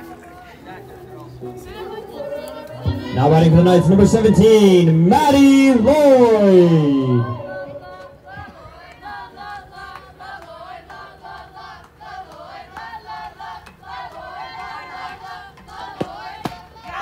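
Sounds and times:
young women chanting a cheer: 6.0 - 17.0.

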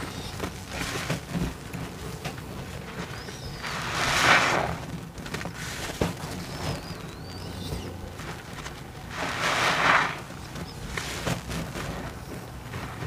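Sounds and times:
foamy water splashing from sponge: 3.6 - 4.9, 9.0 - 10.4.

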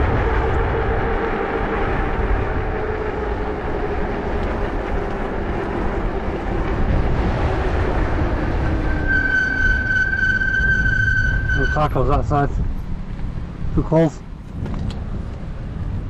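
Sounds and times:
low whine dropping in pitch: 0.0 - 12.3
wind rushing over microphone: 0.0 - 16.0.

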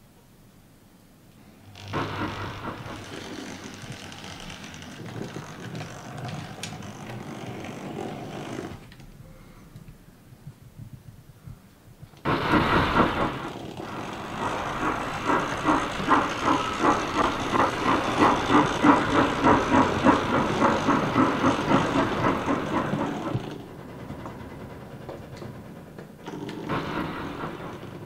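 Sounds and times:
steam hissing: 1.5 - 8.8, 12.2 - 24.2, 26.3 - 28.0
steam locomotive chuffing: 1.5 - 9.4, 12.2 - 28.0.

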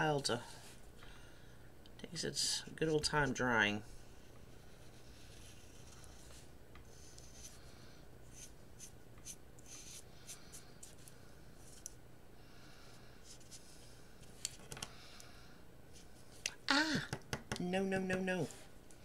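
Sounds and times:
steady low hum: 0.0 - 19.0
marker tip scratching: 8.3 - 10.0.

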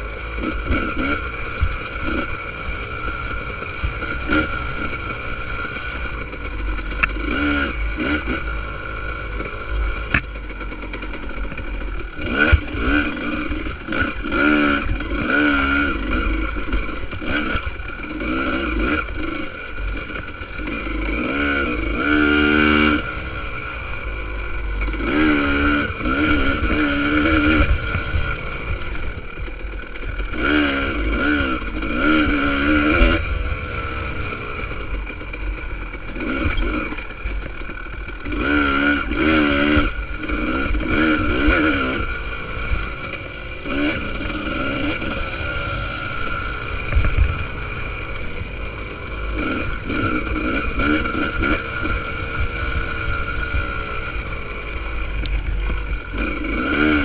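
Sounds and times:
motorcycle engine revving: 0.0 - 57.0
bike knocking on rough ground: 10.0 - 10.4
low wind rumble: 42.0 - 56.6.

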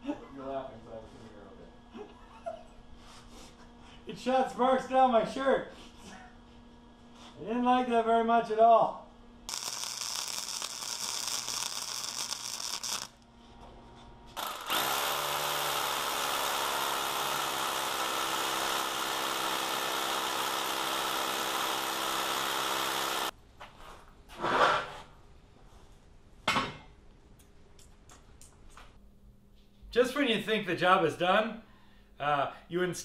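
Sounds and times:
drill boring into concrete: 9.5 - 13.2, 14.4 - 23.3.

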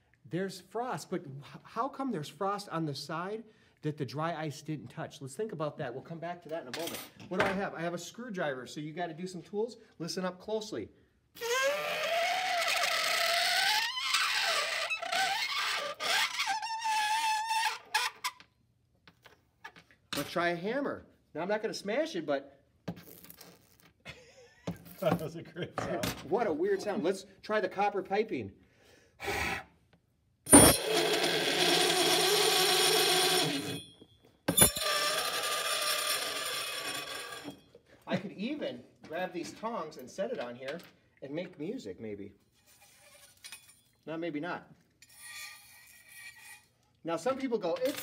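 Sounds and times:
metal squealing on dry ice: 11.4 - 18.4, 30.5 - 34.0, 34.6 - 37.6, 42.6 - 43.5, 45.0 - 46.8
high-pitched metal squeal: 34.6 - 37.6.

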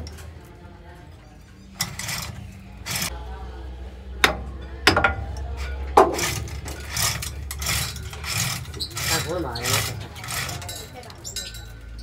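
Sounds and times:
metal scraping: 1.3 - 3.4, 4.0 - 12.0
metal knocks: 4.2 - 11.6.

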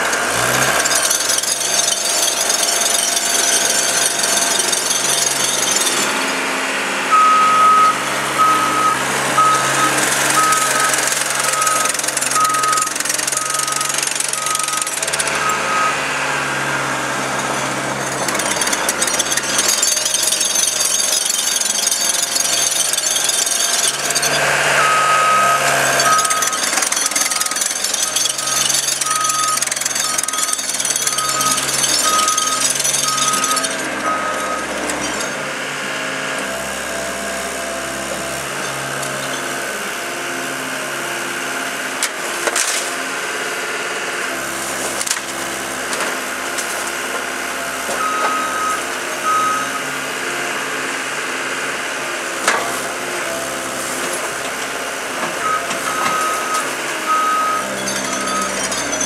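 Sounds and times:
diesel engine running: 0.0 - 59.0
back-up alarm beeping: 7.1 - 16.1, 22.9 - 34.8, 48.0 - 49.8, 55.4 - 58.6.

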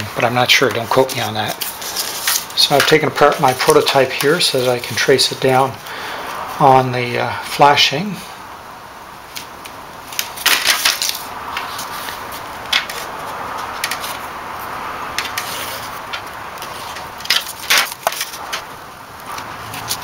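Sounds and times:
sheet metal crinkling: 15.1 - 20.0.

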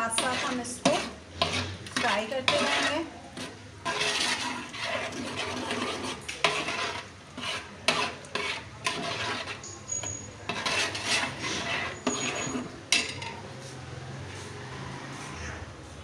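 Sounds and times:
food frying: 0.0 - 9.7
spoon stirring in a pot: 0.0 - 13.8
spoon clinking against pot: 7.9 - 13.4.

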